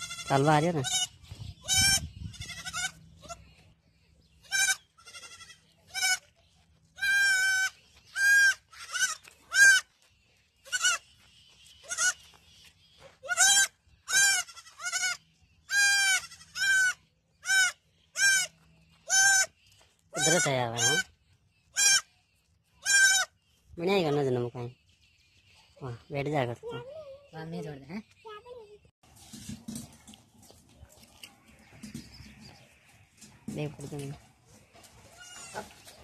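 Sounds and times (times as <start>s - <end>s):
goat kid bleating: 0.0s - 3.5s, 4.4s - 6.4s, 7.0s - 9.9s, 10.6s - 11.0s, 11.8s - 12.2s, 13.2s - 19.6s, 20.2s - 21.1s, 21.7s - 22.1s, 22.8s - 23.4s, 35.1s - 35.8s.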